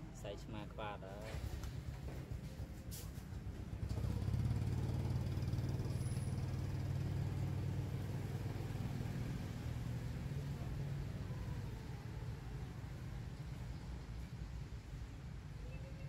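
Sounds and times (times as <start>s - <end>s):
engine running at low revs: 3.6s - 13.2s.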